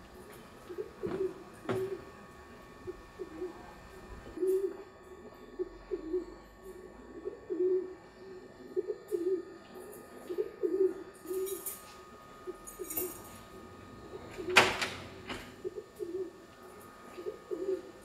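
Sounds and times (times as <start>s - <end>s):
dove cooing: 0.0s - 18.0s
keys jingling: 12.7s - 13.4s.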